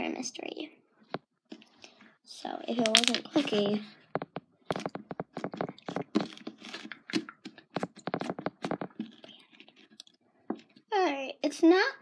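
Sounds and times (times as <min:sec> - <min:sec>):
crackling and clicking: 0:02.8 - 0:10.8.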